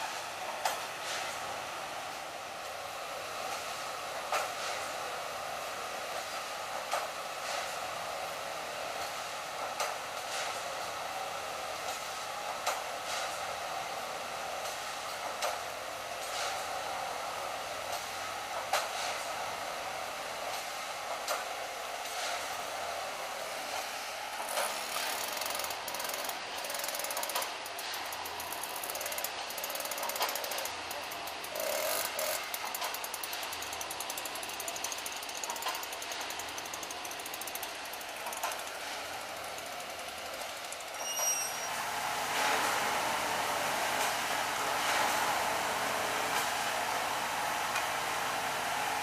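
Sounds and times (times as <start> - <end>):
track machinery clattering: 24.4 - 41.6.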